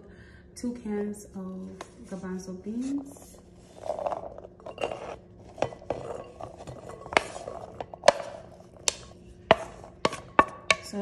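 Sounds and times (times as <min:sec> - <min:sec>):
wooden spatula scraping: 0:01.8 - 0:10.5
spatula knocking against bowls: 0:04.6 - 0:11.0.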